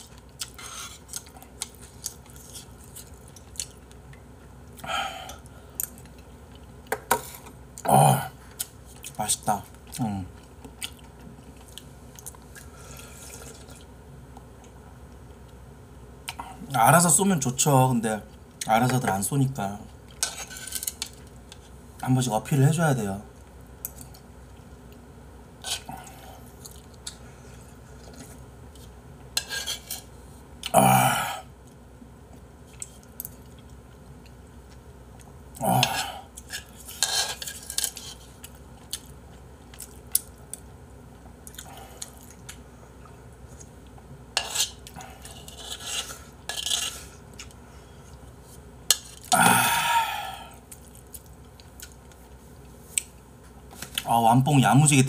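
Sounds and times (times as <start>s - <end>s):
metal spoon scraping a bowl: 29.4s - 30.1s, 44.4s - 47.1s.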